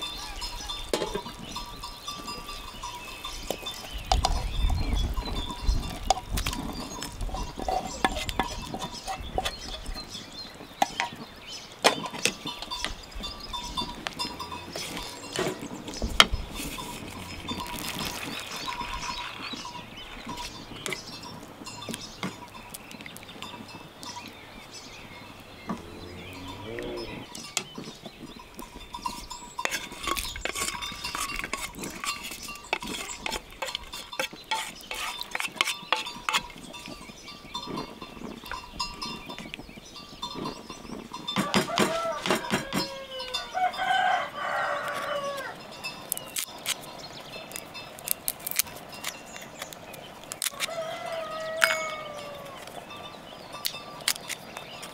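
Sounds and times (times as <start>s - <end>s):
animal calls: 25.2s - 27.4s, 50.5s - 52.9s
metallic bell clinks: 51.6s - 52.3s.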